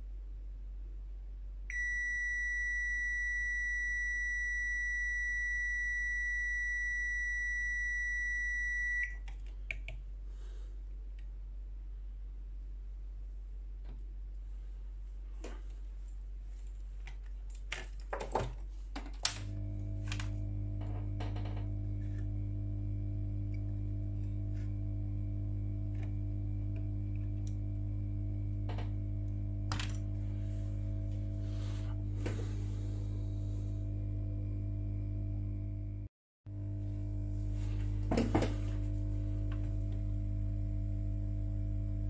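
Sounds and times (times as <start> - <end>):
steady low hum: 19.3 - 42.0.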